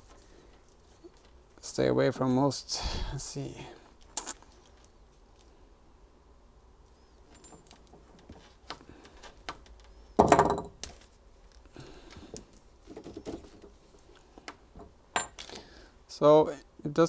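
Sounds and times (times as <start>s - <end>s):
connector parts clattering: 7.2s - 11.1s.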